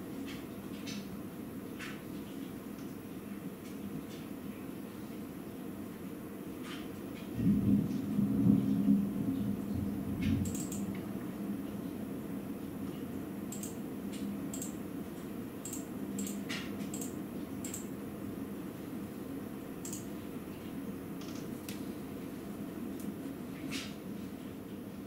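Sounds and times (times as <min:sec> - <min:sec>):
steady rain: 0:07.3 - 0:10.4
thunder rumble: 0:07.3 - 0:10.5.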